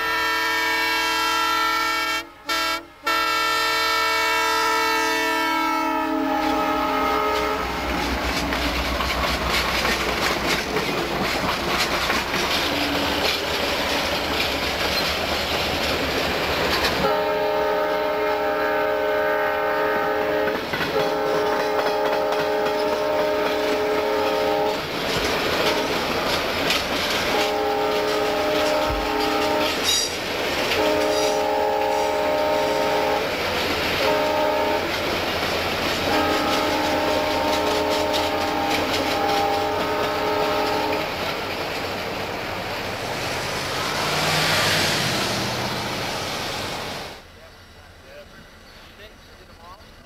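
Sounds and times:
train chime horn blasts: 0:00.0 - 0:08.1, 0:17.0 - 0:24.8, 0:25.6 - 0:26.1, 0:27.3 - 0:33.3, 0:34.0 - 0:35.0, 0:36.0 - 0:41.2
train wheels clickety-clack and rumble: 0:05.4 - 0:50.0.

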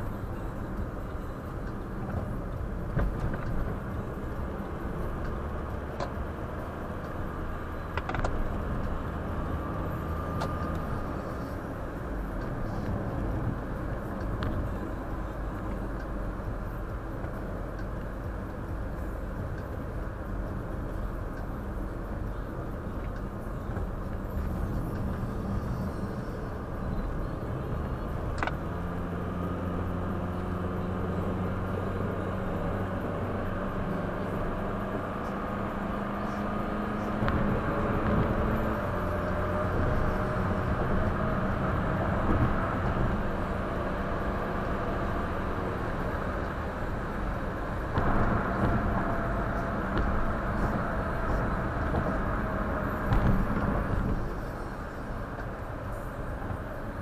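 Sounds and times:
car engine and road noise: 0:00.0 - 0:57.0.

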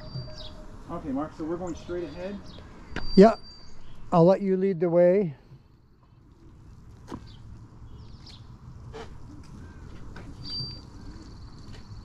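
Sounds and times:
faint bird chirps: 0:00.0 - 0:04.2, 0:10.3 - 0:12.0.

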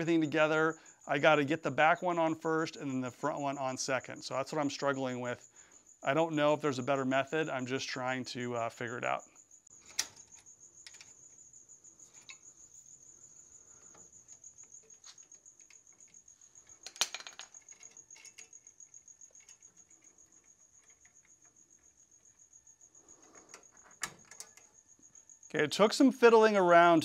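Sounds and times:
cricket chirping: 0:00.0 - 0:27.0.

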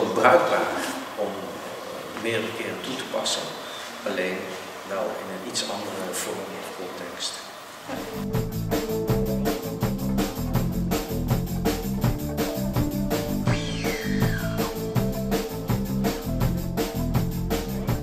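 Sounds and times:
background music with steady beat: 0:08.0 - 0:18.0
high sliding tone: 0:13.4 - 0:14.9.

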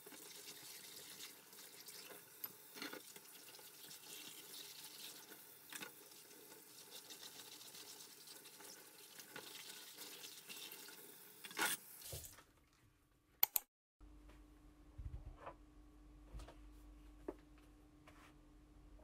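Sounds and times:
sharp clicks: 0:13.4 - 0:13.7.

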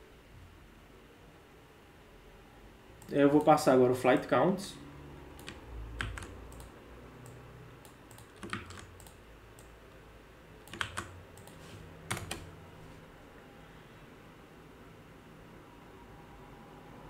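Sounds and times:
typing on computer keyboard: 0:05.4 - 0:09.7, 0:10.6 - 0:12.5.

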